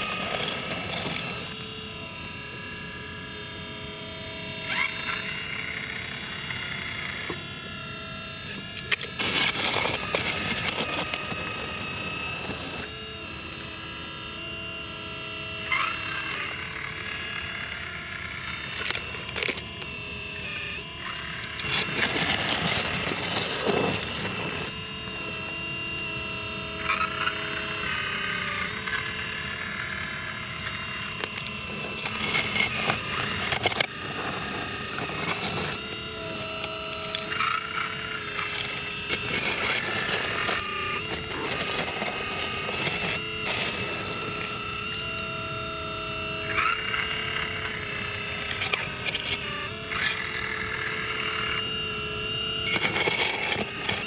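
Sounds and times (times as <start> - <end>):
hydraulic pump and motors whining: 0.0 - 54.0
dirt and stones rattling: 21.6 - 24.8, 31.1 - 45.2.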